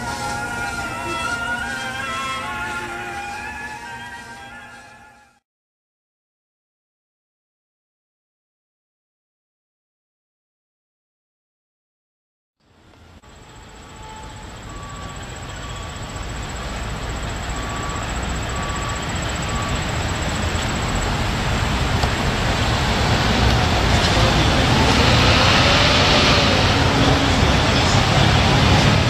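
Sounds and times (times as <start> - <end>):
road traffic noise: 0.0 - 5.4, 12.6 - 29.0.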